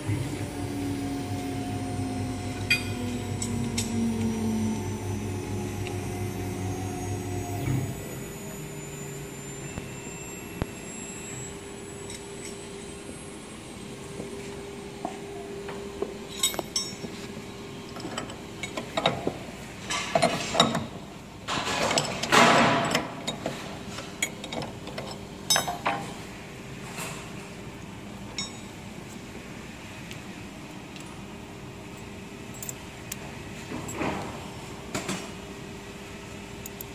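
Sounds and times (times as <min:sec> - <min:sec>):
machine hum: 0:00.0 - 0:23.6.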